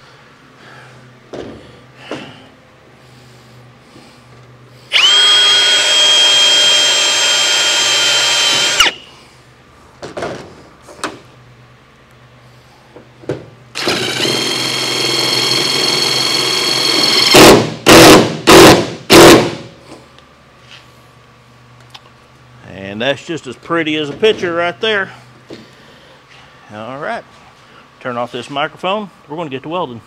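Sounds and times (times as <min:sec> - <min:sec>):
cordless drill whining into metal: 0:04.9 - 0:09.0, 0:13.8 - 0:17.4.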